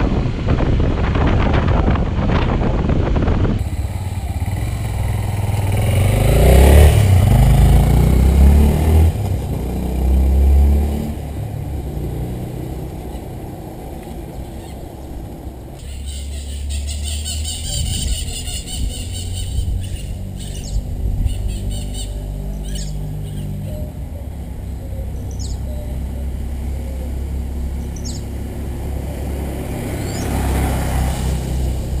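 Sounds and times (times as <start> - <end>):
motorcycle engine revving: 3.5 - 32.0
bird chirping: 15.8 - 28.3, 30.0 - 30.4.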